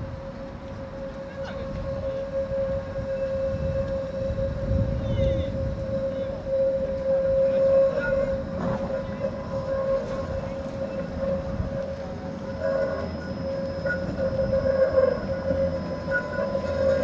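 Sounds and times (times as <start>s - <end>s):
tram wheels rumbling on rails: 0.0s - 17.0s
whining wheel squeal: 0.0s - 17.0s.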